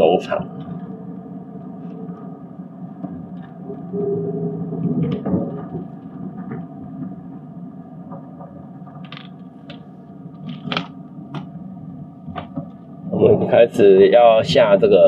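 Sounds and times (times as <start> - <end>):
faint ticks and rustles: 0.2 - 4.0.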